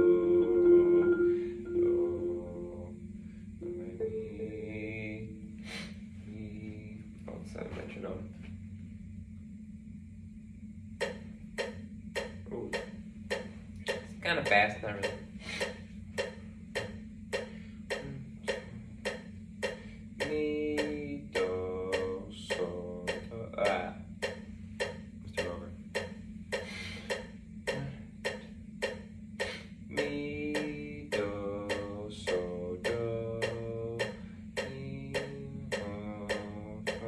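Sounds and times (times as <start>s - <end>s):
held pitched notes: 0.0s - 8.1s, 11.0s - 37.0s
low steady hum: 0.0s - 37.0s
metronome ticking: 11.0s - 37.0s.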